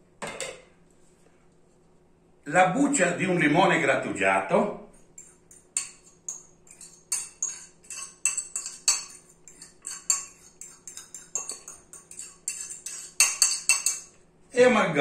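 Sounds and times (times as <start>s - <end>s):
faint steady hum: 0.0s - 15.0s
fork scraping ceramic bowl: 5.0s - 14.1s.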